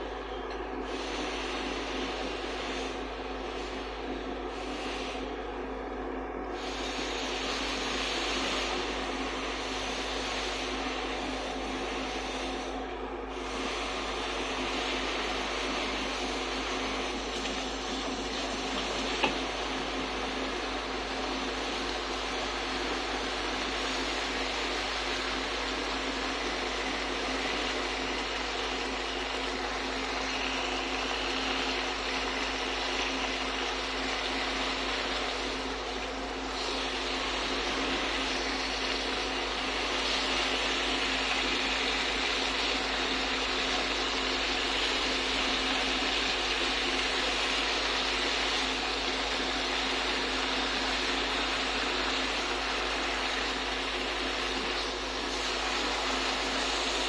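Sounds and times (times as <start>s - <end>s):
meat sizzling in a pan: 14.4s - 57.0s.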